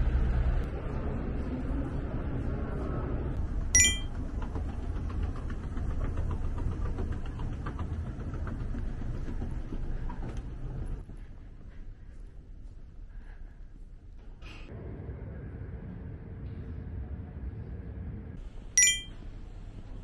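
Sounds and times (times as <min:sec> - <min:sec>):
bright ringing tone: 0:03.8 - 0:04.1, 0:18.8 - 0:19.1.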